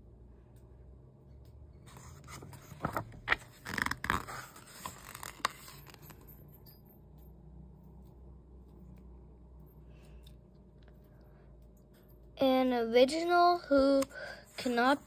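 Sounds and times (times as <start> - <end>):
book page rustling: 1.9 - 6.3.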